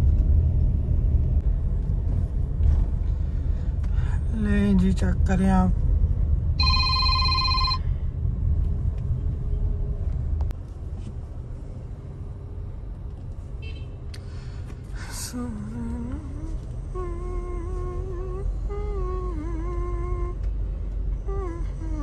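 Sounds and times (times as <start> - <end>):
car engine and tyres rumbling: 0.0 - 22.0
electronic ringing tone: 6.6 - 7.9.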